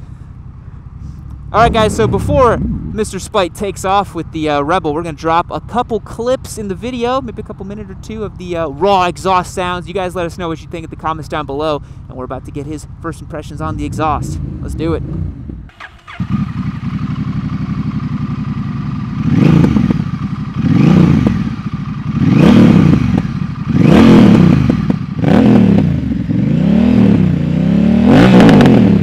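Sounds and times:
motorcycle engine revving: 0:00.6 - 0:04.8, 0:12.7 - 0:29.0.

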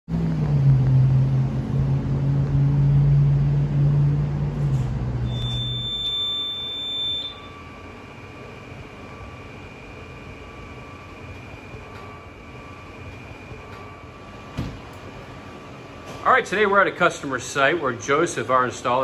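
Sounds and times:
room hum: 0:00.1 - 0:19.0
high-pitched alarm panel buzzer: 0:05.2 - 0:07.8.

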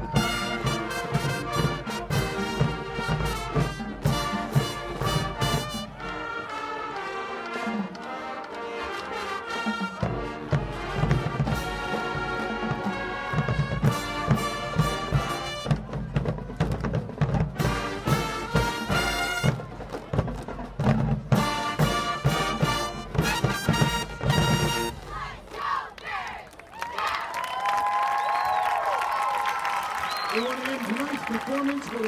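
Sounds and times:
marching band playing: 0:00.0 - 0:26.4.

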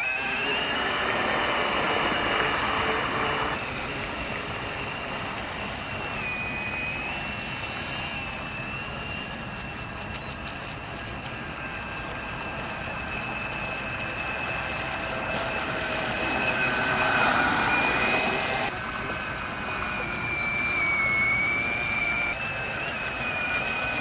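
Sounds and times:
model boat motor whining: 0:00.0 - 0:03.6, 0:11.4 - 0:24.0.

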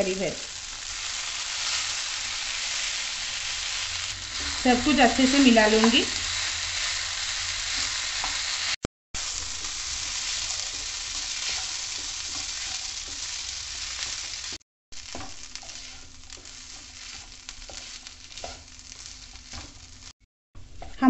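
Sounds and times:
vegetables sizzling in a frying pan: 0:00.0 - 0:20.2
wooden spatula scraping: 0:09.4 - 0:20.1.

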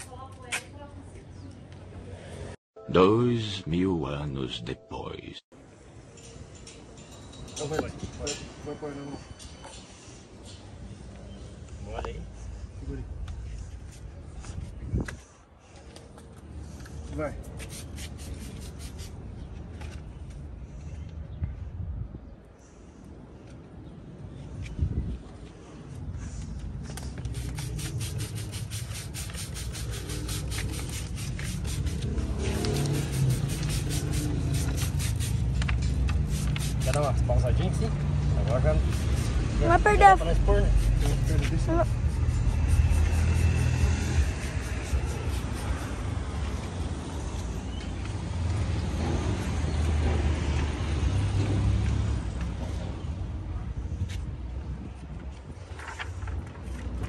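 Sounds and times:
vehicle engine rumble: 0:19.1 - 0:57.0
hands scraping vinyl decal: 0:27.0 - 0:37.2, 0:38.8 - 0:46.1.

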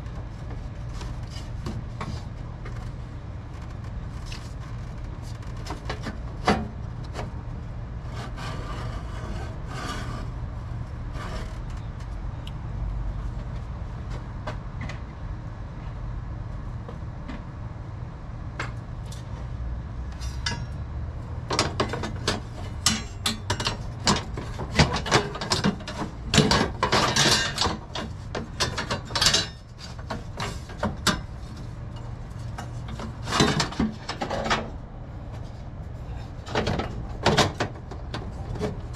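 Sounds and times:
steady low hum: 0:00.0 - 0:38.9
scraping and clanking: 0:21.5 - 0:38.9.

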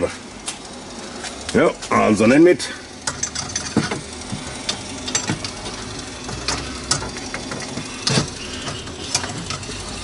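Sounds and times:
electric motor hum: 0:00.0 - 0:10.0
rotisserie spit clicking and knocking: 0:02.9 - 0:10.0.

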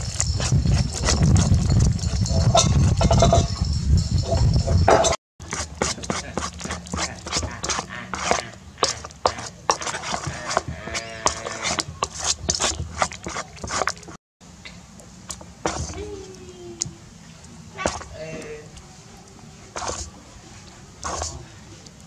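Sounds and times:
metal spoon scraping a bowl: 0:00.0 - 0:14.2, 0:15.3 - 0:16.0, 0:17.8 - 0:18.2, 0:19.7 - 0:20.1, 0:21.0 - 0:21.5.

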